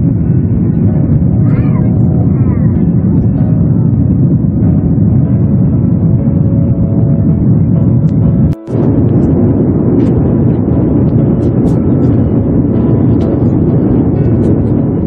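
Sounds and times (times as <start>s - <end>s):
jet airliner cabin noise: 0.0s - 15.0s.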